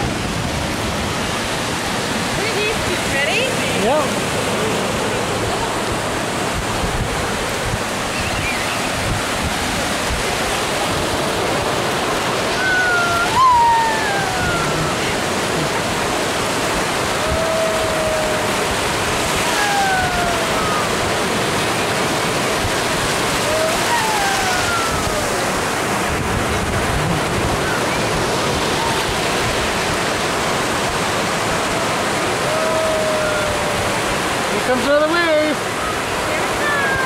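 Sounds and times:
ocean surf breaking: 0:00.0 - 0:37.0
high falling cries: 0:12.5 - 0:15.5, 0:17.2 - 0:21.2, 0:23.4 - 0:25.8.

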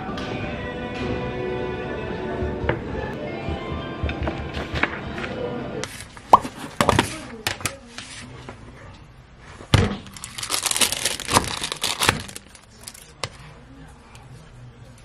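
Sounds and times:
paper crinkling: 0:10.1 - 0:13.2.

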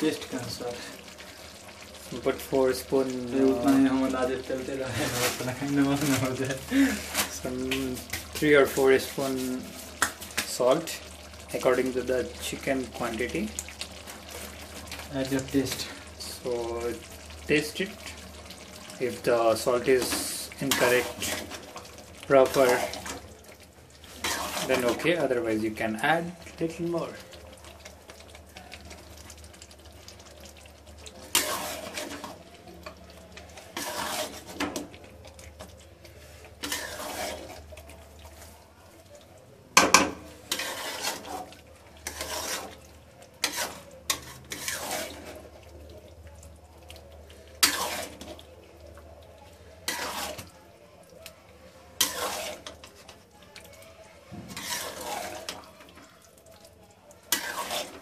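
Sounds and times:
spatula scraping in wet pot: 0:03.3 - 0:10.7, 0:19.0 - 0:25.4, 0:31.0 - 0:38.6, 0:40.0 - 0:45.6, 0:47.3 - 0:48.5, 0:49.7 - 0:50.6, 0:51.9 - 0:53.2, 0:54.3 - 0:56.1, 0:57.2 - 0:58.0.

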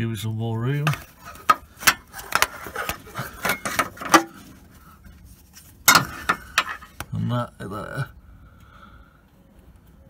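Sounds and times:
rubbing: 0:00.9 - 0:07.0.

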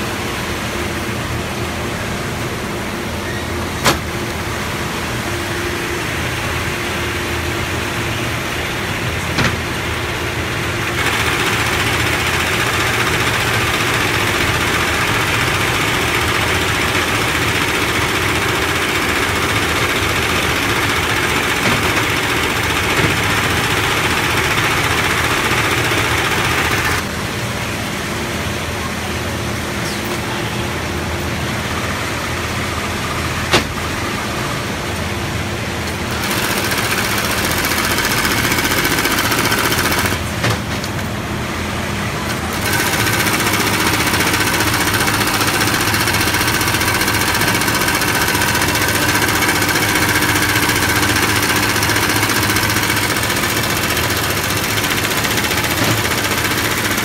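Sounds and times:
sewing machine stitching: 0:10.8 - 0:27.0, 0:36.1 - 0:40.3, 0:42.5 - 0:57.0.

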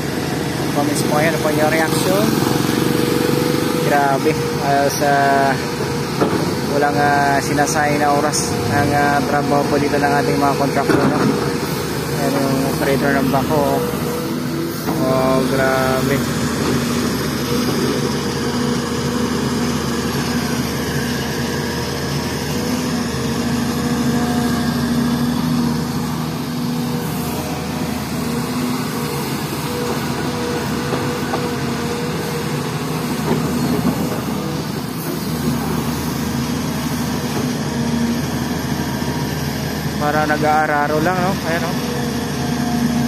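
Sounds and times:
excavator diesel engine running: 0:00.0 - 0:43.0.

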